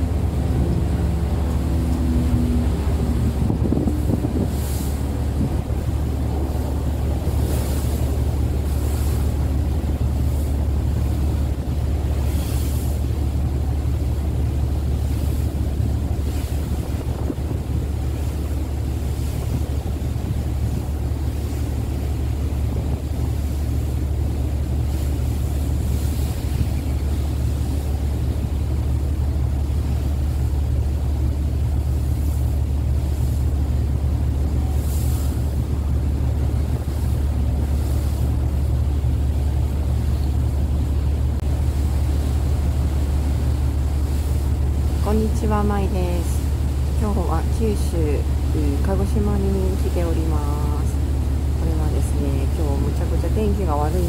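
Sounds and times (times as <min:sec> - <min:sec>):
ferry engines droning: 0:00.0 - 0:54.0
wind hissing on microphone: 0:02.1 - 0:11.5, 0:15.4 - 0:18.4.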